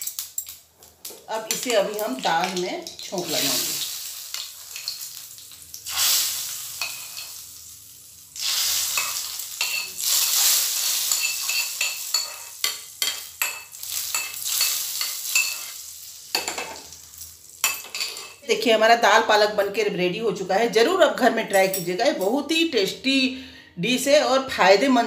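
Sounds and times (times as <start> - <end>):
hot oil sizzling: 0.0 - 18.4
spoon scraping pan: 6.7 - 7.4, 8.4 - 15.8.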